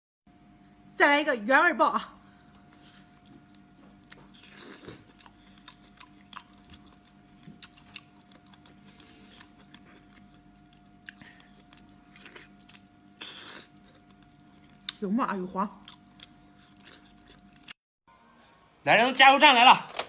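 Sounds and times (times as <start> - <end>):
faint steady hum: 0.3 - 19.1
biting and chewing: 2.4 - 15.0, 15.8 - 17.8.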